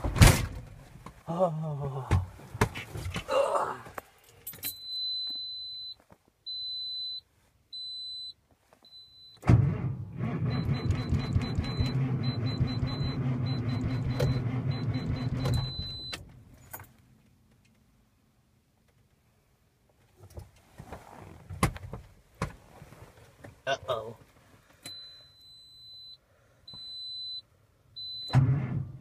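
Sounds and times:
truck warning chime beeping: 10.4 - 16.2, 24.8 - 28.4.

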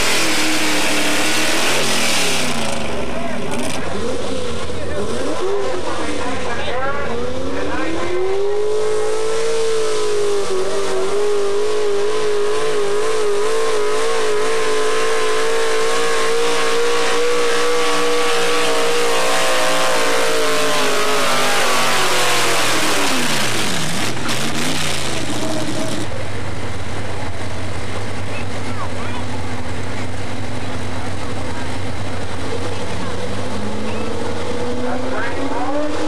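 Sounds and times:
truck engine at full throttle: 0.0 - 36.0
truck engine idling: 23.4 - 34.1.

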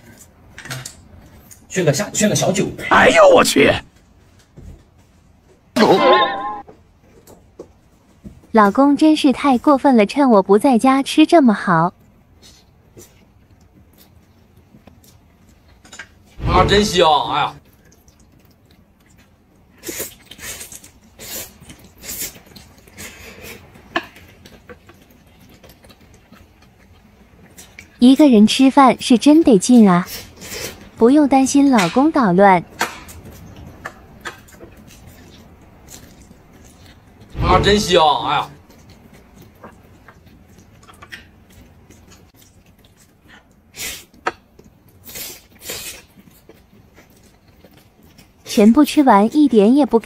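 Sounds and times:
chewing: 17.6 - 28.0, 32.8 - 37.3, 38.5 - 48.6.

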